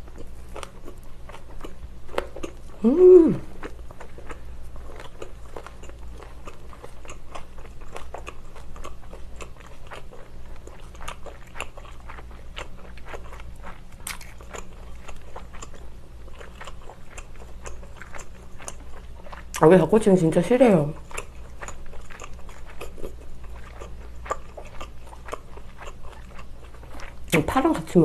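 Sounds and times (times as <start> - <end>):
chewing mouth clicks and smacks: 0.0 - 2.7, 3.6 - 19.6, 21.0 - 27.4
faint low hum: 0.0 - 28.0.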